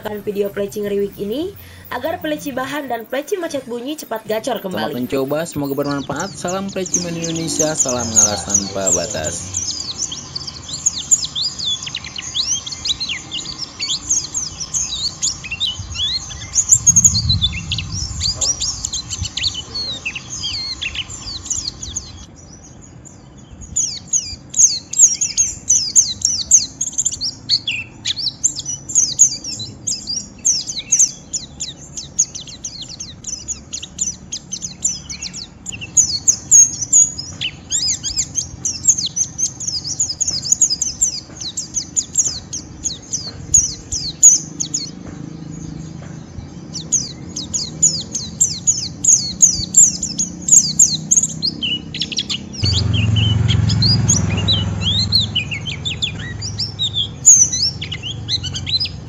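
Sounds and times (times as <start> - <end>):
bird chattering high chirps: 0.0 - 22.4, 23.6 - 45.0, 46.7 - 59.0.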